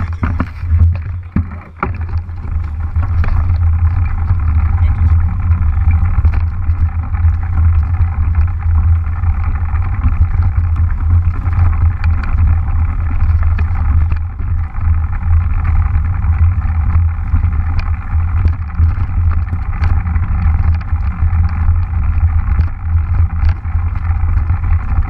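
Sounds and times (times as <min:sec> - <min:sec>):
bike clicks and rattles: 0:00.0 - 0:25.0
bike riding rumble: 0:00.0 - 0:25.0
wind on microphone: 0:00.0 - 0:25.0.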